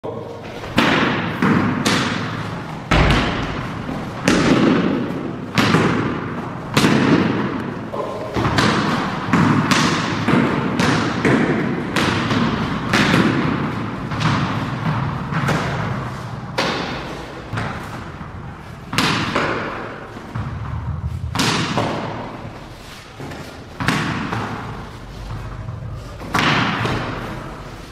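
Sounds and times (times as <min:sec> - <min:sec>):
cricket bat striking balls: 0:00.8 - 0:16.0, 0:18.8 - 0:22.4, 0:23.2 - 0:27.6
balls landing on tiled floor: 0:02.9 - 0:07.7.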